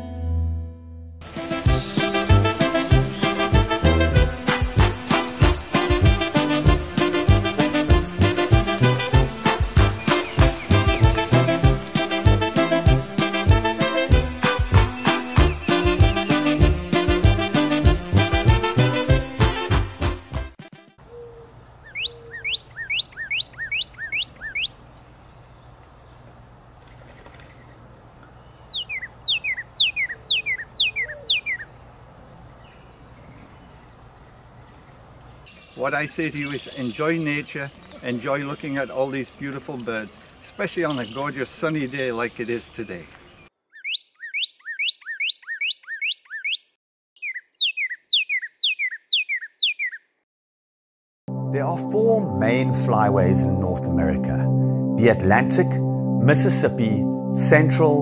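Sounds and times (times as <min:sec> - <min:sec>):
bird singing whistles: 0:04.2 - 0:05.6, 0:21.0 - 0:24.8, 0:28.5 - 0:31.7, 0:43.7 - 0:50.0.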